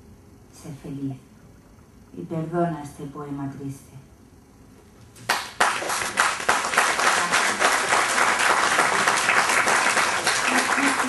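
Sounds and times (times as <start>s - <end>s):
audience applause: 5.3s - 11.0s.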